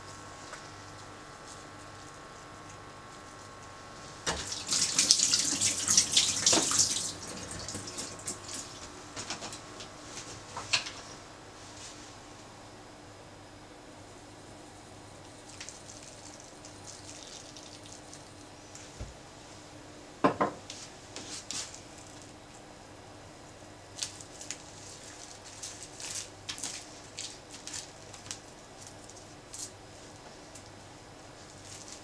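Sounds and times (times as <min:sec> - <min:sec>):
bamboo mat clicks and rustles: 0:24.0 - 0:29.7.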